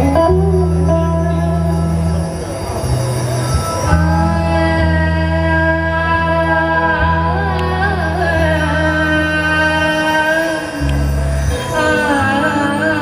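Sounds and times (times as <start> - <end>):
keyboard chords: 0.0 - 13.0
low bass: 0.0 - 13.0
woman singing: 3.9 - 13.0.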